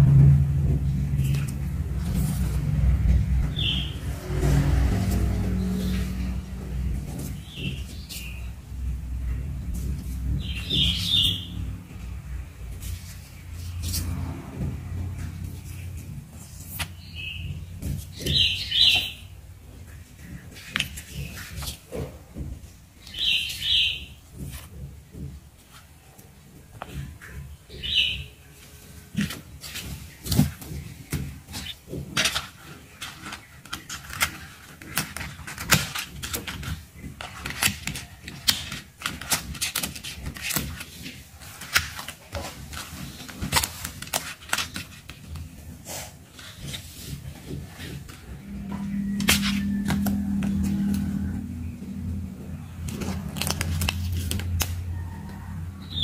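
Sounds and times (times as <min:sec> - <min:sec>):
steady low hum: 0:00.0 - 0:18.2, 0:47.1 - 0:56.0
plastic sheets rustling and clicking: 0:00.7 - 0:54.9
bird chirps: 0:03.5 - 0:04.0, 0:10.4 - 0:11.6, 0:17.0 - 0:19.3
plastic packets crinkling: 0:52.2 - 0:54.9.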